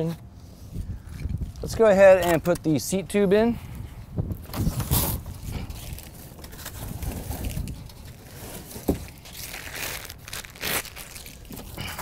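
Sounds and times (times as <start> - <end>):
packaging crinkling and rustling: 4.5 - 12.0.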